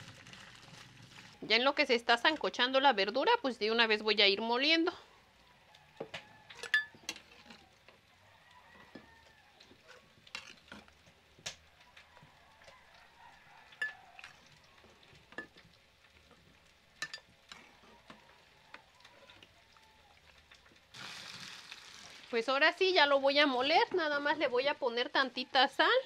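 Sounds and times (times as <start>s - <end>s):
spoon scraping and knocking: 6.1s - 7.7s, 8.9s - 11.0s.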